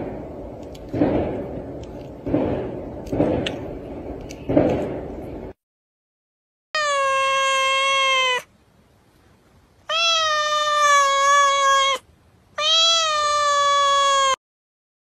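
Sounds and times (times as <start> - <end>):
cat meowing: 6.8 - 8.5, 9.9 - 14.4.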